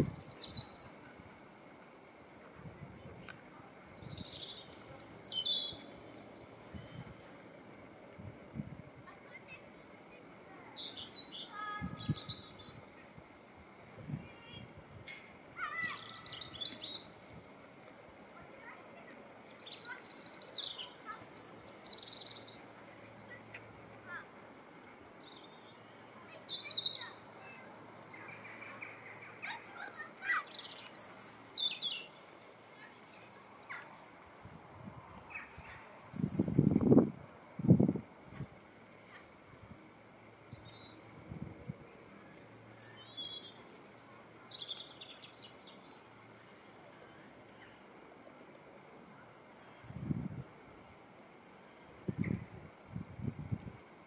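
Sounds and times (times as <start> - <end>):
small birds chirping: 0.0 - 1.1, 3.2 - 7.4, 9.1 - 13.2, 14.2 - 17.4, 18.3 - 37.2, 38.3 - 41.1, 41.9 - 47.9
faint outdoor background: 0.0 - 54.0.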